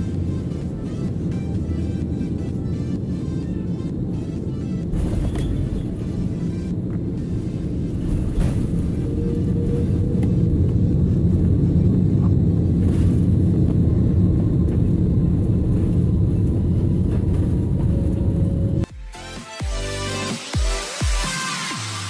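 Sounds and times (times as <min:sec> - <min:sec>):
airliner cabin rumble: 0:00.0 - 0:18.9
electronic music with beat: 0:18.8 - 0:22.0.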